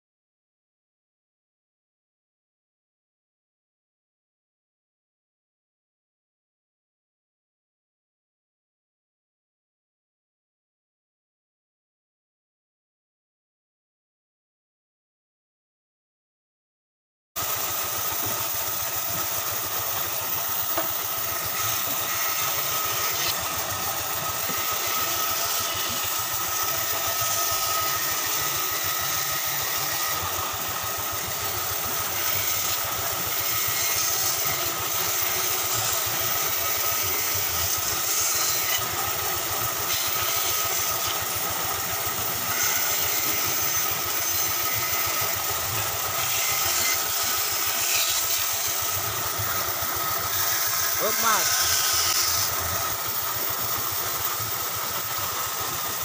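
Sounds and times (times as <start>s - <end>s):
band saw cutting wood: 17.4s - 56.0s.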